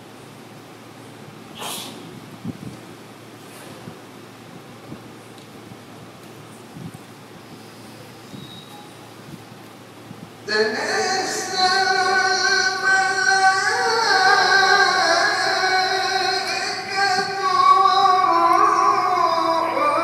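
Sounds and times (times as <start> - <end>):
man chanting into a microphone: 10.4 - 20.0.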